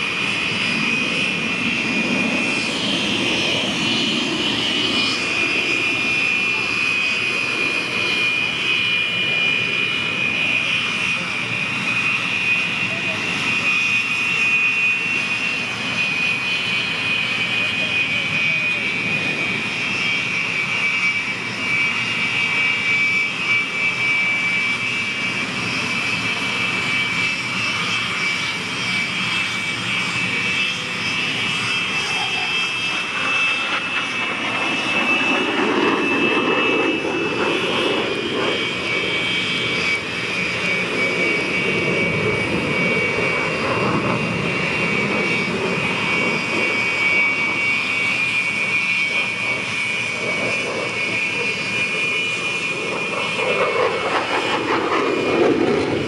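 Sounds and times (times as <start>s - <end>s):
jet engine roar: 0.0s - 56.0s
jet engine whine: 0.0s - 56.0s.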